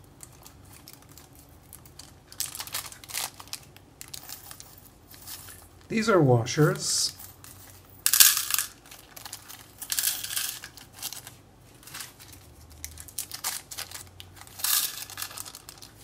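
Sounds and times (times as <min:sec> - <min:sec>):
plastic bag crinkling: 0:00.0 - 0:05.9, 0:07.2 - 0:16.0
metal washers clicking: 0:08.1 - 0:09.2.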